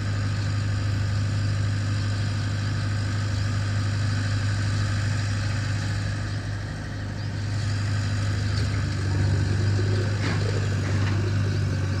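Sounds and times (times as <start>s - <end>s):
diesel engine humming: 0.0s - 12.0s.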